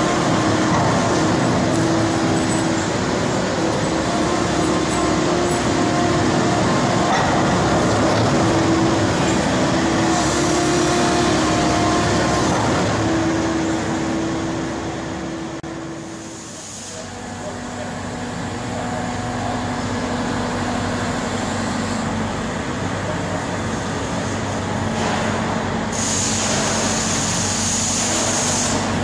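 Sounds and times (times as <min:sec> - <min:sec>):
excavator engine running: 0:00.0 - 0:16.2.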